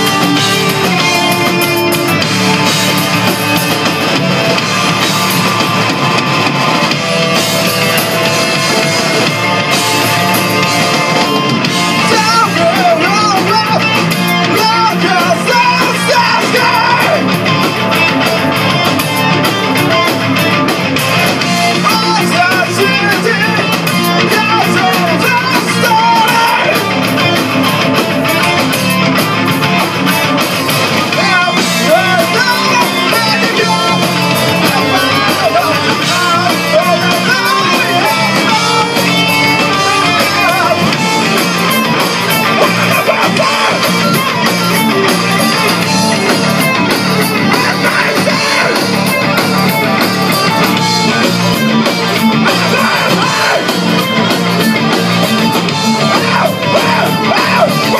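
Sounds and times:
bass guitar: 0:00.0 - 0:57.9
drum kit: 0:00.0 - 0:57.9
electric guitars: 0:00.0 - 0:57.9
man singing: 0:11.9 - 0:17.3, 0:21.8 - 0:26.9, 0:31.0 - 0:41.2, 0:42.5 - 0:43.9, 0:47.3 - 0:49.1, 0:52.4 - 0:54.1, 0:55.5 - 0:57.9.

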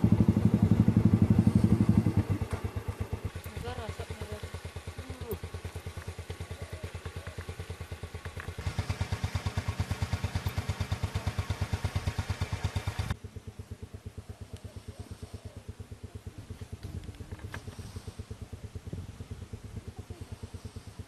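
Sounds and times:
motorcycle engine idling: 0:00.0 - 0:21.0.

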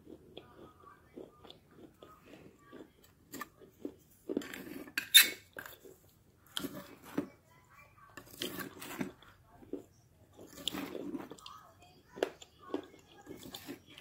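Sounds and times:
soft chewing: 0:00.0 - 0:14.0
plastic spoon scraping a plate: 0:03.3 - 0:07.4, 0:08.1 - 0:09.2.

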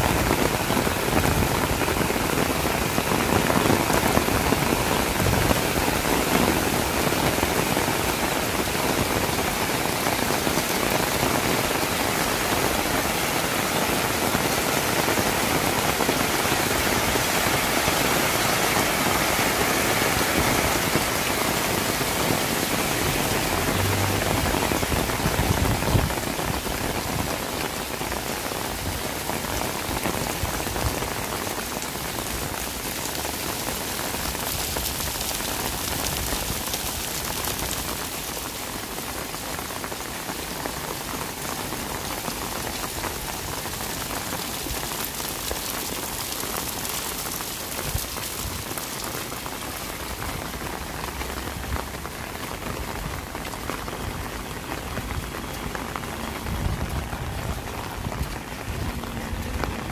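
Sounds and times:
rain on wet pavement: 0:00.0 - 0:59.9.

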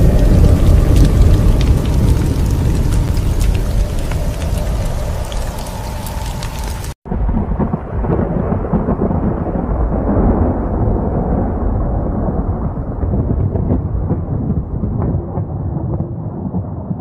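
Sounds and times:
rain hissing: 0:00.0 - 0:07.0
sharp crackles: 0:00.0 - 0:07.0.

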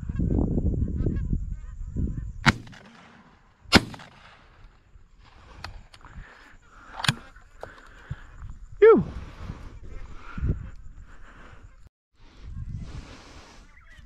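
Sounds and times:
shotgun shots: 0:02.4 - 0:04.6
distant gunshots: 0:02.5 - 0:04.6.

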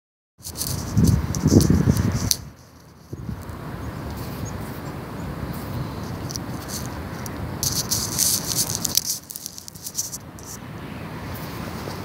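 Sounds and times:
camera handling rustling: 0:00.4 - 0:03.2, 0:06.1 - 0:10.6
crackling: 0:05.6 - 0:10.6.

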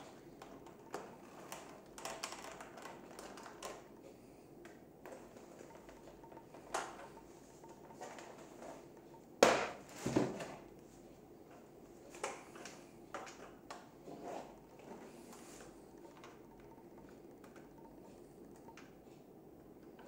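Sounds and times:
handling ticks: 0:00.3 - 0:09.4, 0:14.6 - 0:20.0.

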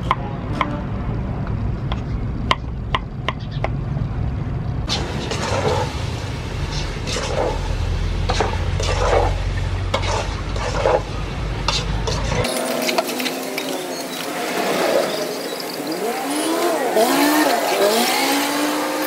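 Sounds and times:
steady low rumble: 0:00.0 - 0:12.5.

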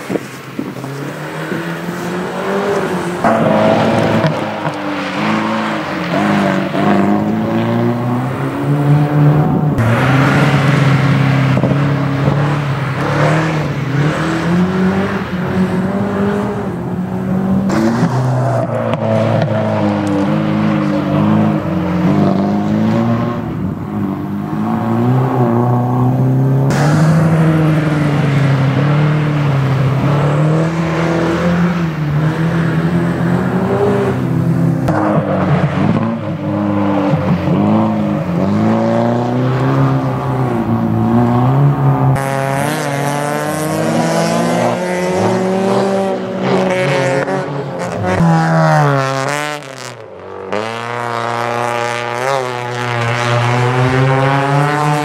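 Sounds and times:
car engines revving: 0:00.0 - 0:55.0.

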